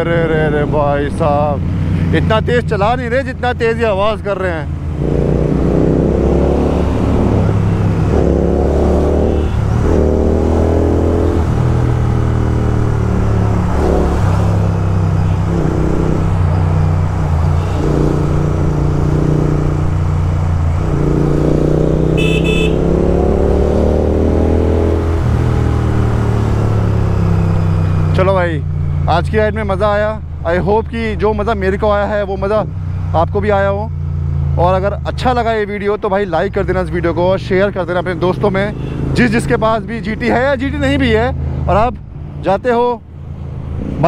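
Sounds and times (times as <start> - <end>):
motorcycles with loud exhausts: 5.0 - 28.2
short horn beep: 22.2 - 22.8.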